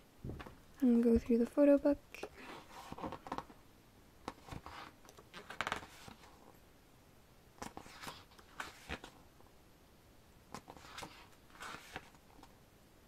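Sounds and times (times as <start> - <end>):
pages being turned: 2.4 - 3.5, 4.2 - 6.5, 7.6 - 9.2, 10.5 - 12.5.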